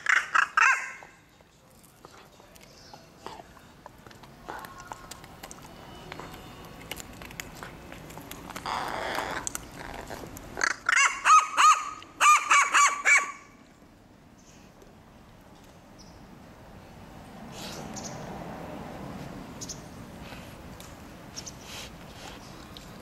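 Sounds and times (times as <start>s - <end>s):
crow calling: 0.0s - 1.2s, 10.6s - 13.5s
dog chewing wooden stick: 0.8s - 11.2s, 21.6s - 23.0s.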